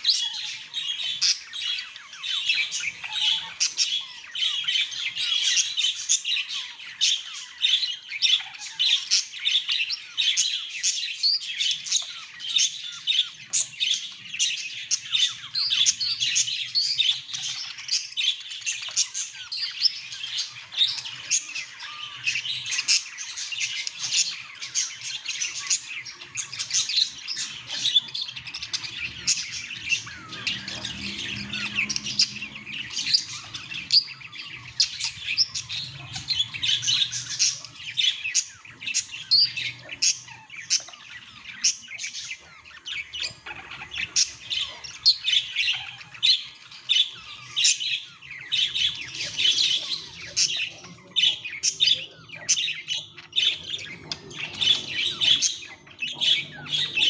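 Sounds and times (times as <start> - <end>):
budgerigar chattering: 18.8 - 57.0.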